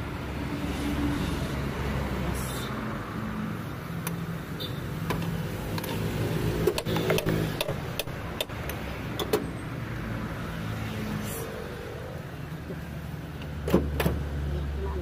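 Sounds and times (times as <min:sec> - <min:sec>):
metal tools clicking on engine: 0:05.1 - 0:09.4.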